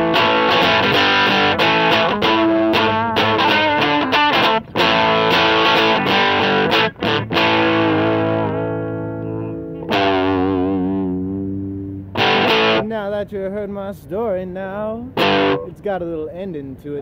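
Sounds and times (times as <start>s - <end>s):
distorted electric guitar chords: 0.0s - 13.0s, 15.1s - 15.8s.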